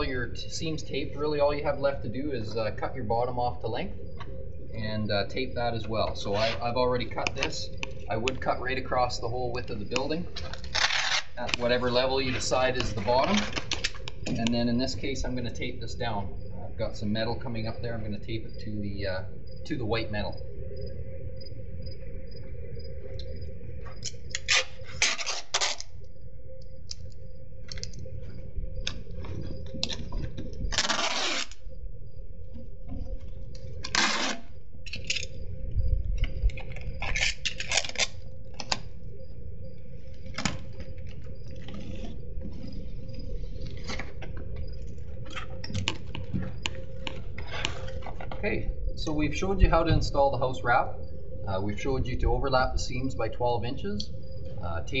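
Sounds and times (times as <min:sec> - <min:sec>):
steady low hum: 0:00.0 - 0:55.0
tape clicks and crinkles: 0:09.5 - 0:14.6, 0:24.0 - 0:26.1, 0:26.8 - 0:28.1, 0:28.8 - 0:31.6, 0:33.2 - 0:35.4, 0:36.1 - 0:38.9, 0:40.1 - 0:42.5, 0:43.6 - 0:48.4
tape rasping off roll: 0:30.7 - 0:31.6.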